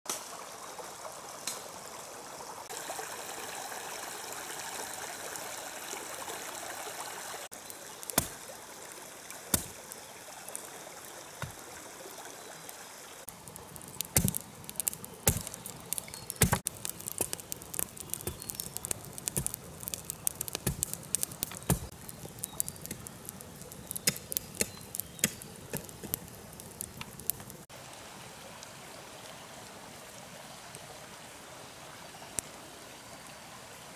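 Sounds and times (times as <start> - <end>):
stream rushing: 0.1 - 21.7
wood fire popping and crackling: 7.5 - 10.7, 13.3 - 27.7.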